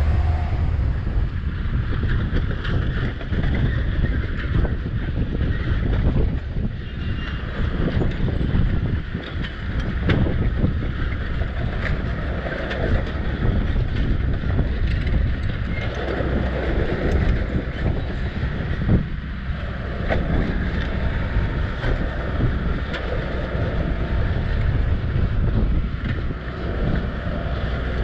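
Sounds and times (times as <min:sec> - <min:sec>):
low rumble: 0:00.0 - 0:04.1
wind buffeting microphone: 0:00.0 - 0:28.0.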